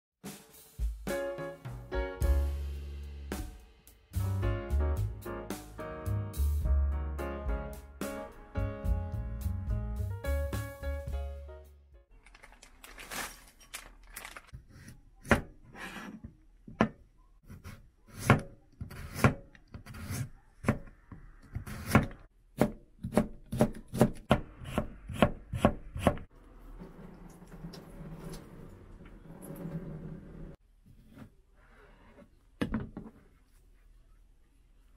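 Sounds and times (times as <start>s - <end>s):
knife slicing carrot on board: 17.5s - 26.2s.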